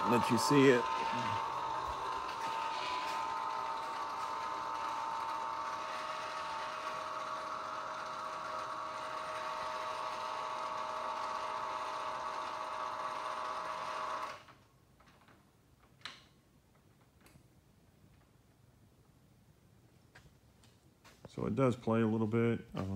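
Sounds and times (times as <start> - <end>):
rotator motor whining: 0.0 - 14.5.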